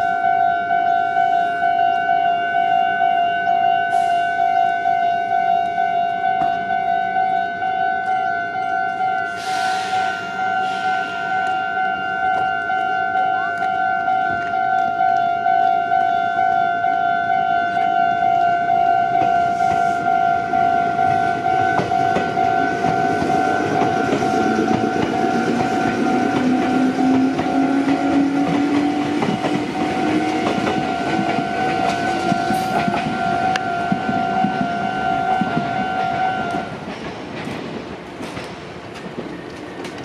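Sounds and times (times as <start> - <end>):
electric train passing: 0.0 - 40.0
level-crossing bell ringing: 10.1 - 27.7.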